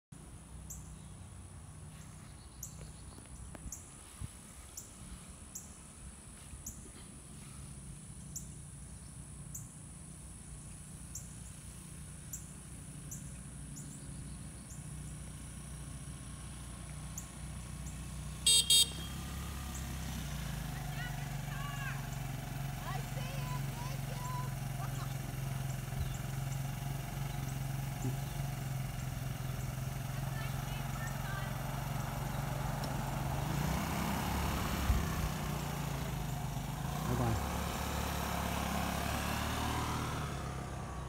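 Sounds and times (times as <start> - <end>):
motor scooter engine hum: 0.4 - 41.0
scooter horn beeps: 18.4 - 19.4.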